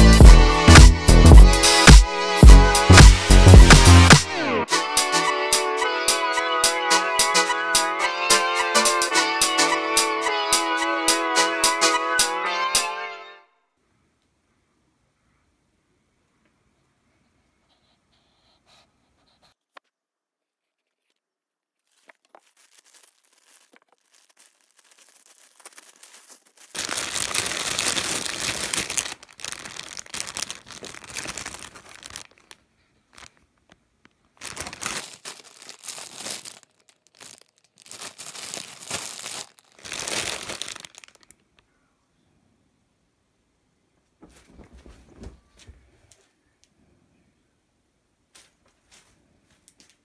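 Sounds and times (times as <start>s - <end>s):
plastic packaging crinkling: 20.8s - 41.6s.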